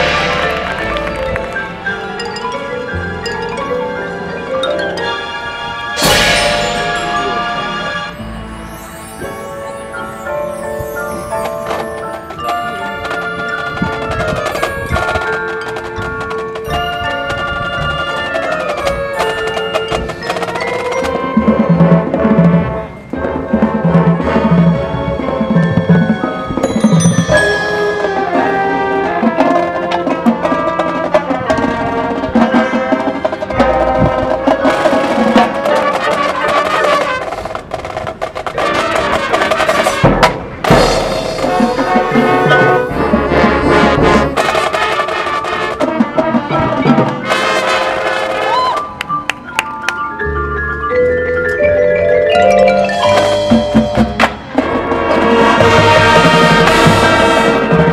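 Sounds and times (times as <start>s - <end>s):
drums: 0.0s - 4.4s, 6.0s - 49.7s, 51.4s - 57.9s
marching band playing: 0.0s - 49.9s, 51.1s - 57.9s
marimbas and bell-like keyboard: 1.1s - 22.1s, 25.3s - 28.4s, 49.2s - 54.5s.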